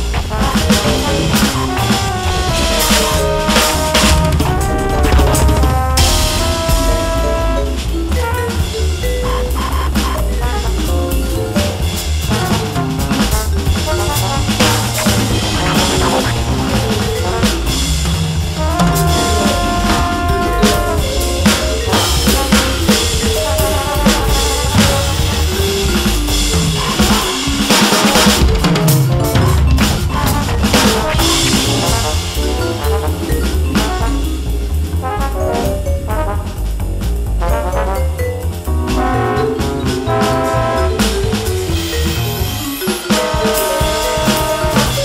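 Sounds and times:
backing track with bass line: 0.0s - 45.0s
electronic drum swing groove: 0.0s - 45.0s
held pitched notes: 12.8s - 34.7s.

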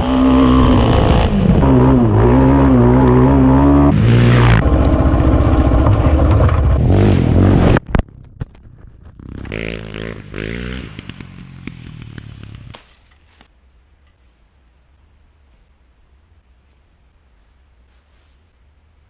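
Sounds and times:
quad engine revving: 0.0s - 7.8s, 9.2s - 12.7s.

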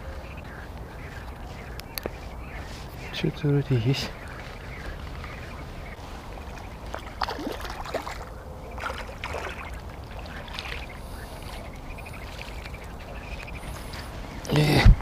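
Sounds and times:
water splashing: 4.2s - 14.1s.

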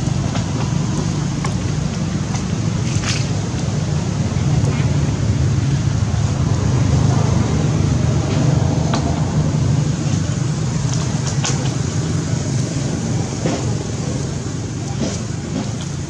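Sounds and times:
low engine hum: 0.0s - 16.0s.

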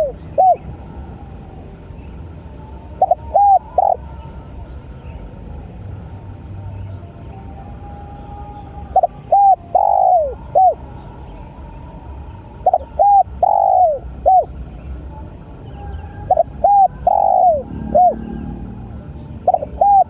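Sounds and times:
dove cooing: 0.0s - 0.7s, 3.0s - 4.2s, 8.9s - 10.8s, 12.6s - 14.5s, 16.3s - 20.0s.

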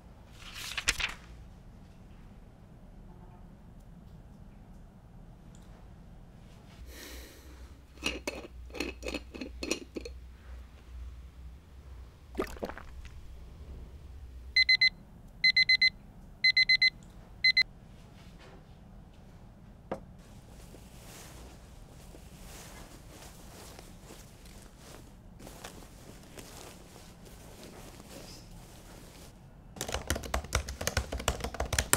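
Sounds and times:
electronic alarm beeping: 14.6s - 17.6s.

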